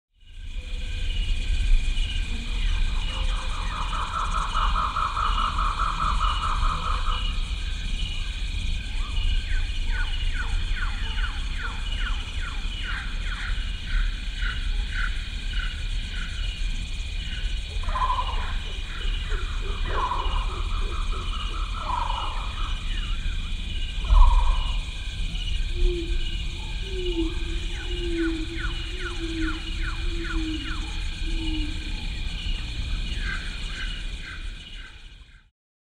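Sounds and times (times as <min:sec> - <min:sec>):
low rumble on microphone: 0:16.6 - 0:34.3
low wavering tone: 0:17.7 - 0:32.7
bird chirping: 0:17.8 - 0:34.9.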